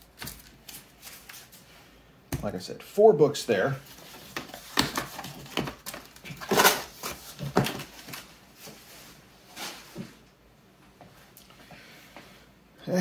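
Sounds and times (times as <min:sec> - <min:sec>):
cardboard packaging rustling: 0:03.8 - 0:10.1.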